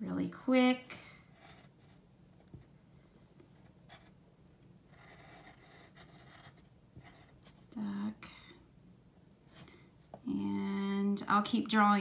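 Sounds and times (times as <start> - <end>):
pencil scratching on paper: 1.3 - 2.6, 3.6 - 4.2, 4.9 - 7.7.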